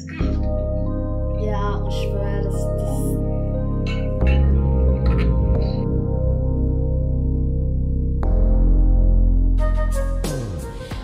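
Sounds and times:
slow music with sustained chords: 0.0s - 10.6s.

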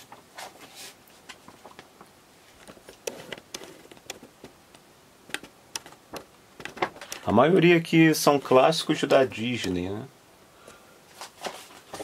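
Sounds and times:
paper poster rustling: 0.0s - 4.5s, 5.4s - 7.3s, 11.1s - 12.0s
stiff paper clicks: 5.3s - 7.3s.

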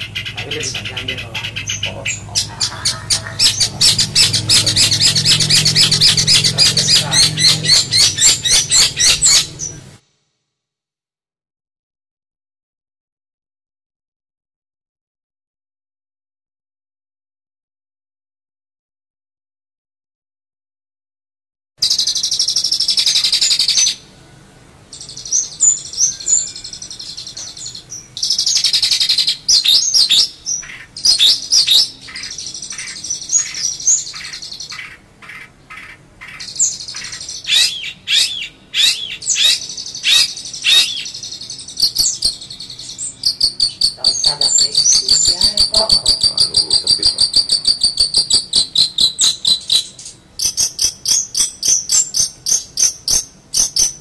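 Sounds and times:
shrike singing trills: 0.0s - 10.0s, 21.8s - 54.0s.

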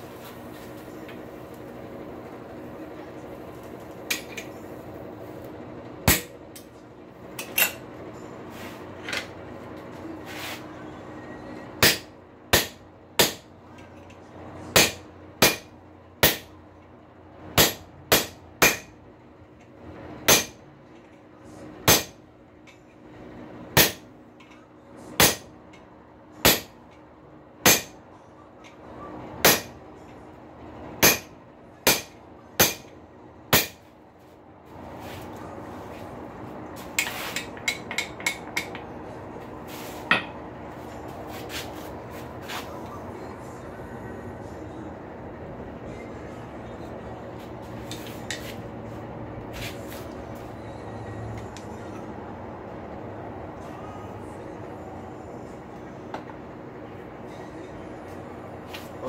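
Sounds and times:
steady hum: 0.0s - 59.0s
hammer striking metal on anvil: 6.0s - 6.4s, 11.8s - 13.5s, 14.7s - 16.5s, 17.6s - 19.0s, 20.3s - 20.6s, 21.8s - 22.2s, 23.8s - 24.1s, 25.2s - 25.5s, 26.4s - 26.8s, 27.6s - 28.0s, 29.4s - 29.8s, 31.0s - 32.9s, 33.5s - 33.9s, 37.0s - 38.9s, 40.1s - 40.4s.

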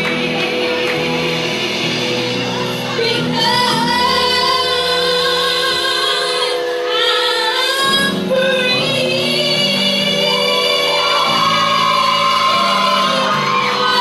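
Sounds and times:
low backing accompaniment: 0.0s - 14.0s
girl singing into a microphone: 3.0s - 14.0s.

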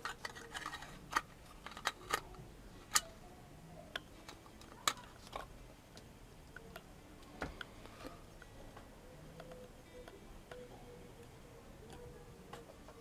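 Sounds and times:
bulb cap clicking and scraping: 0.0s - 3.2s.

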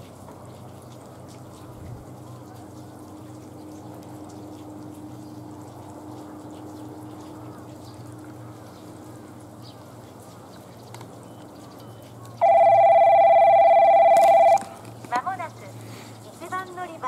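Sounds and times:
water trickling and dripping: 0.0s - 12.4s, 14.5s - 17.0s.

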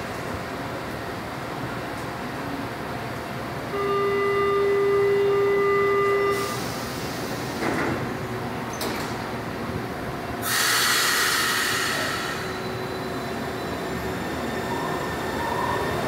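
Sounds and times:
electronic warning tone: 3.7s - 6.7s
loud air hiss: 6.4s - 7.8s, 10.4s - 12.6s.

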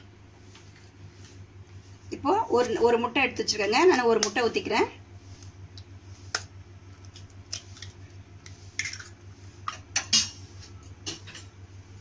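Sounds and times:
egg cracking on metal bowl: 8.8s - 10.3s.

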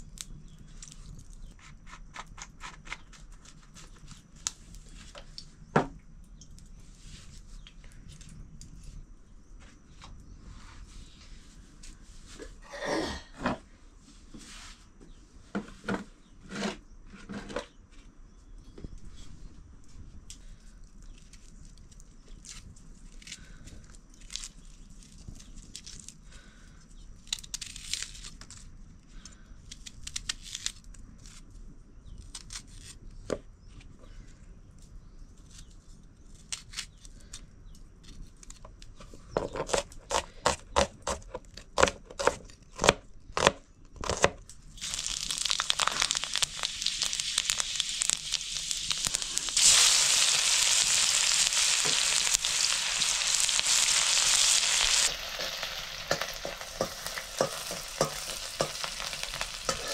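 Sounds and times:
food sizzling in hot oil: 44.8s - 59.9s.

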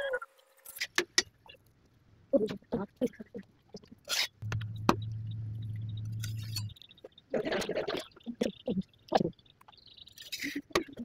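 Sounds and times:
steady low hum: 4.4s - 6.8s.

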